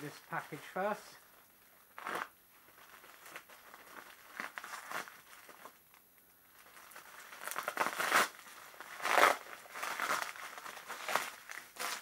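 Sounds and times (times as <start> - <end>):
plastic wrapping crinkling: 0.0 - 12.0.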